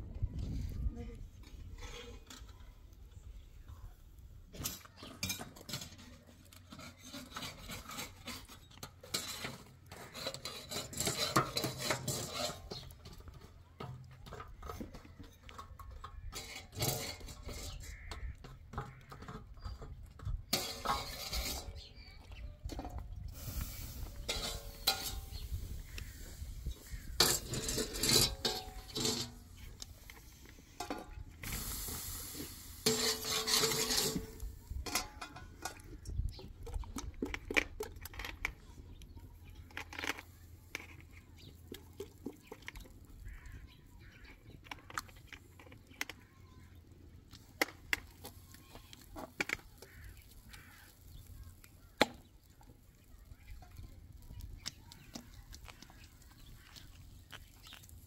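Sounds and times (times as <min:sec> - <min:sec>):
clinks of pots and dishes: 0:20.5 - 0:21.9, 0:24.3 - 0:25.4, 0:27.2 - 0:29.4, 0:32.8 - 0:35.9.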